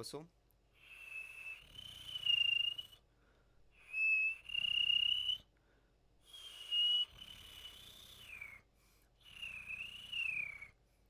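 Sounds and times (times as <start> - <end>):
person whistling with flutter: 0.8 - 3.0, 3.8 - 5.5, 6.2 - 10.8.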